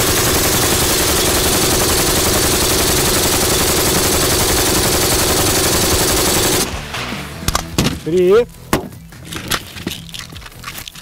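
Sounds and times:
machine gun full-auto burst: 0.0 - 6.7.

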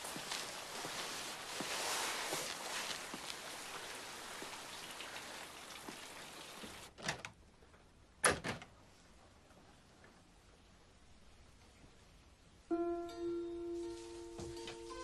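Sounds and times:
steady hiss: 0.0 - 6.9.

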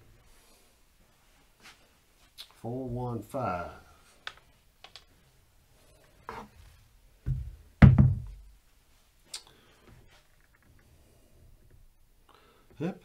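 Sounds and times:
knocks: 7.3 - 8.4.

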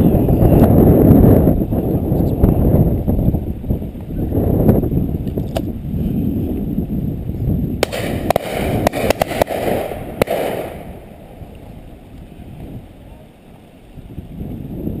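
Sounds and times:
wind buffeting microphone: 0.0 - 15.0
distant shotgun fire: 7.8 - 11.4.

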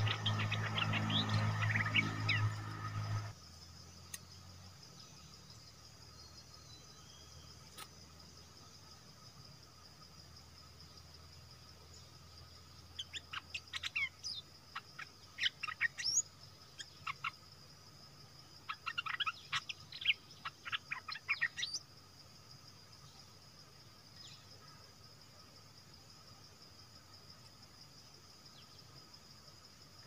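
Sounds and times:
bird chirping: 0.0 - 9.4, 10.6 - 22.4
high insect drone: 0.0 - 30.0.

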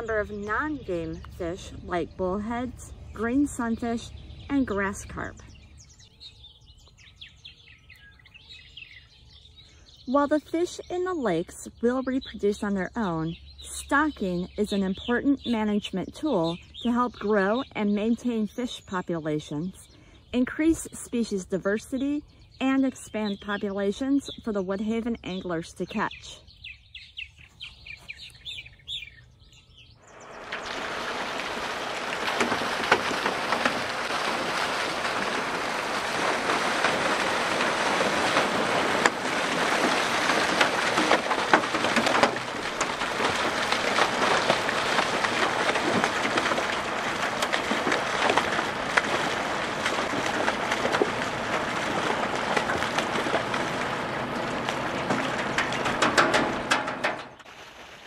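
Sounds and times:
faint bird chirps: 26.1 - 30.4
water gushing and splashing into lake: 30.1 - 58.0.

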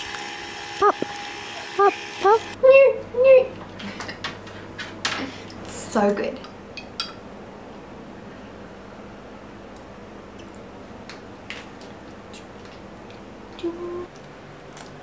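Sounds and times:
person humming: 1.8 - 3.4, 13.6 - 14.1.

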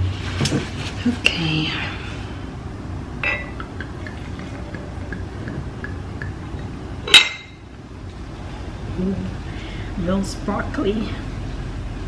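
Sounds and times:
glass clink: 3.2 - 7.6
sparkling wine pouring and fizzing: 3.4 - 7.2.

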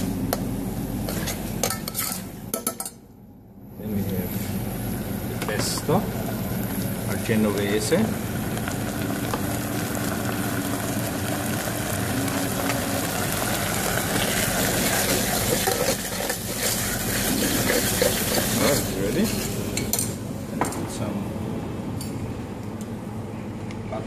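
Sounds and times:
spoon scraping a pot: 1.1 - 2.3
risotto sizzling in a saucepan: 5.6 - 19.8.

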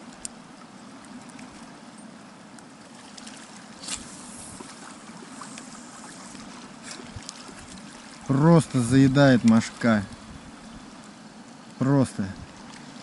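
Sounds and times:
flowing river water: 0.0 - 13.0
faint clicks: 0.1 - 0.4.

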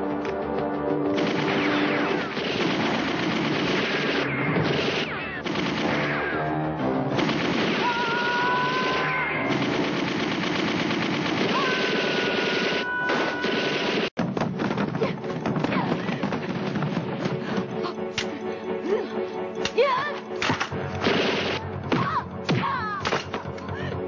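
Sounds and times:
background music: 0.0 - 24.0
rapid gunfire: 1.1 - 6.4, 7.1 - 15.1, 15.9 - 17.2, 20.5 - 21.6.

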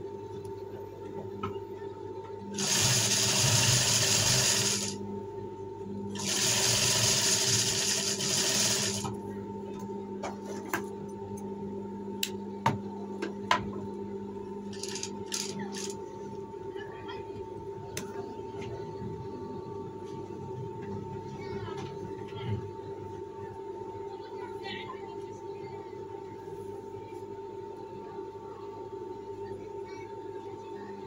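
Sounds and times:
steady electric hum: 0.0 - 21.6
sewing machine stitching: 2.6 - 5.0, 6.2 - 9.1.

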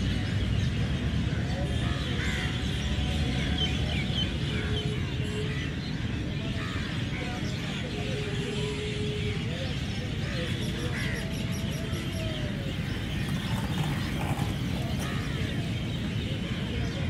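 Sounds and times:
steady rumble and murmur: 0.0 - 17.0
birds chirping: 10.0 - 17.0.

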